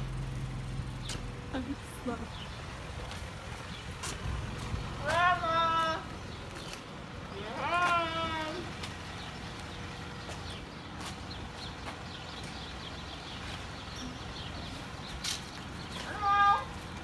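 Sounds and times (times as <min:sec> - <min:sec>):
footsteps on concrete: 0:01.0 - 0:01.4, 0:02.8 - 0:17.0.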